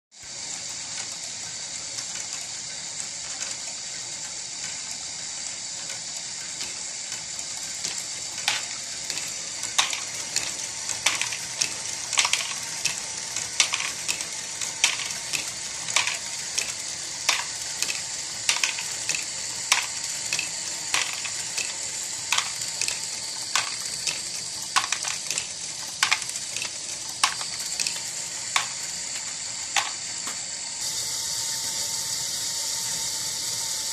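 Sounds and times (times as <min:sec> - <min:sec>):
whir of plastic gears: 0:00.1 - 0:33.9
plastic balls clacking: 0:08.4 - 0:28.8.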